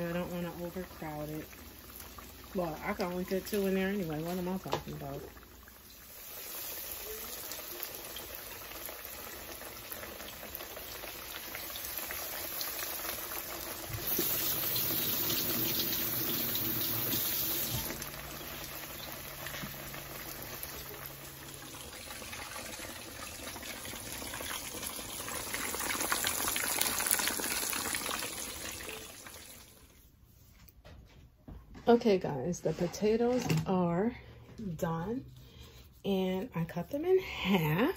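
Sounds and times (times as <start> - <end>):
fish sizzling in frying oil: 0.0 - 29.9.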